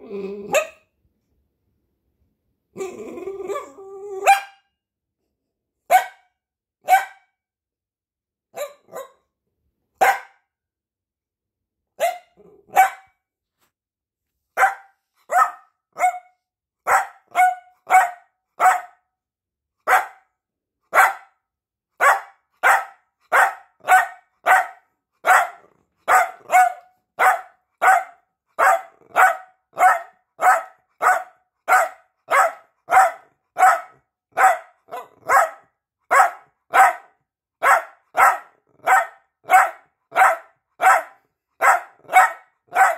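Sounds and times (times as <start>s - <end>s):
dog barking: 0.5s - 0.9s, 4.2s - 4.7s, 5.9s - 7.3s, 8.5s - 9.3s, 10.0s - 10.5s, 12.0s - 13.2s, 14.6s - 19.1s, 19.8s - 20.3s, 20.9s - 21.4s, 22.0s - 42.9s.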